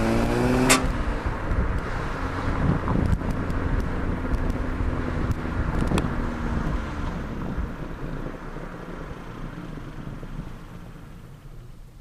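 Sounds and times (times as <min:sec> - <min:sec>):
exhaust pops: 0:00.0 - 0:02.0
car exhaust drone: 0:00.0 - 0:12.0.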